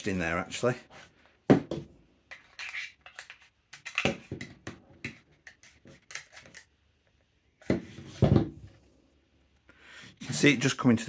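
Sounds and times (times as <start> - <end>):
screwdriver clicking and scraping: 2.3 - 4.2.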